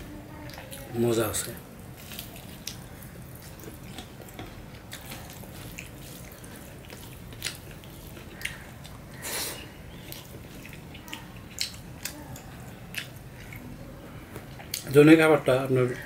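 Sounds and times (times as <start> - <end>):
chewing mouth smacks: 9.9 - 13.7.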